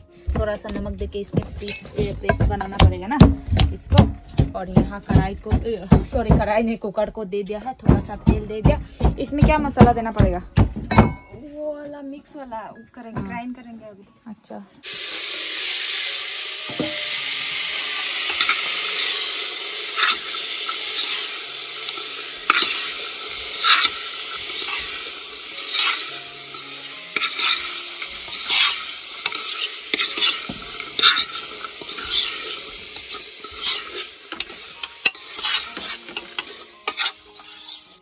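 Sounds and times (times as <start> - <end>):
food sizzling in oil: 14.8 - 38.0
spoon scraping and knocking pot: 18.3 - 19.2, 19.9 - 38.0.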